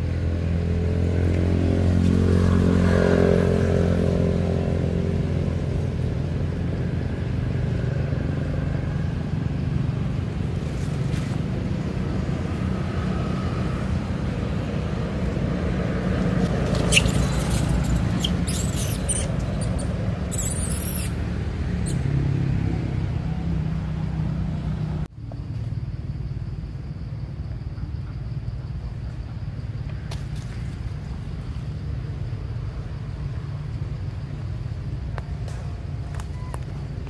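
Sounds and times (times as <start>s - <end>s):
baby monkey squeaking: 16.7s - 21.2s.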